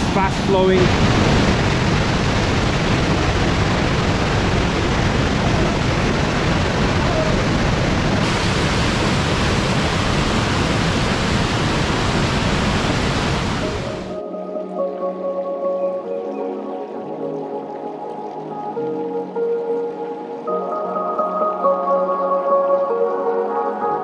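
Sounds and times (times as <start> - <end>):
mountain stream rushing over boulders: 0.0 - 14.1.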